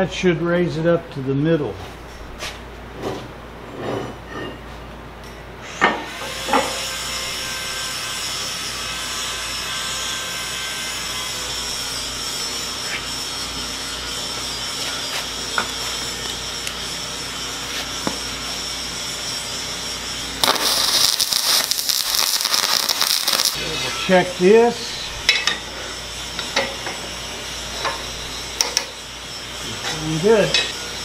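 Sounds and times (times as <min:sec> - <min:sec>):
steady whirring hum: 0:00.0 - 0:31.0
welding arc crackling hiss: 0:06.4 - 0:31.0.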